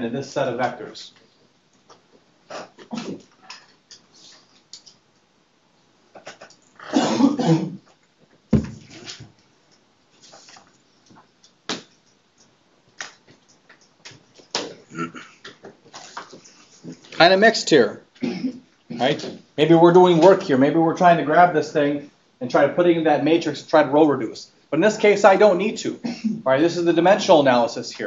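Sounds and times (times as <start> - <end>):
low thump: 8.5 - 8.9.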